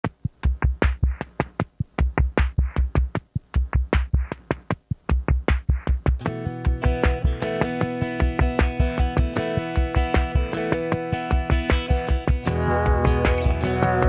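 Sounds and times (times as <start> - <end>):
drum machine beat: 0.0 - 14.0
sustained synth chords: 12.0 - 14.0.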